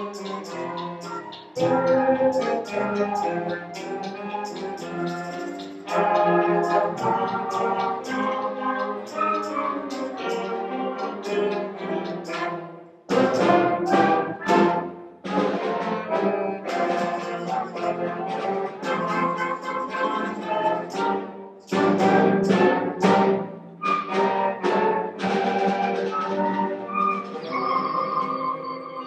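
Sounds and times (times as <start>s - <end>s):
concert band playing: 0.0s - 29.0s.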